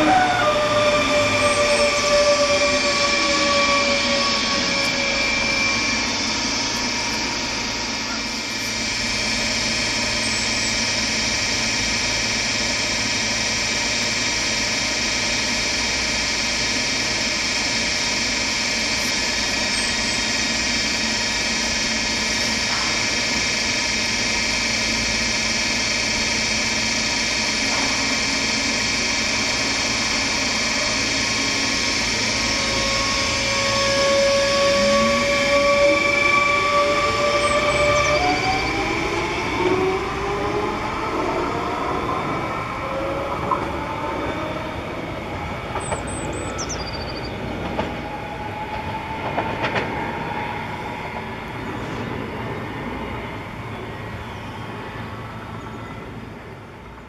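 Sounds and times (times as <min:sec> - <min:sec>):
steady whine tones: 0:00.0 - 0:57.0
traction motors rising whine: 0:00.0 - 0:57.0
train equipment hum: 0:00.0 - 0:57.0.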